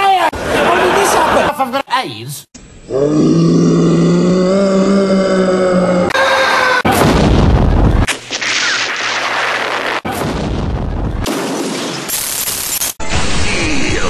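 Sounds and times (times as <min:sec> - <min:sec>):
explosions: 0:06.9 - 0:13.8.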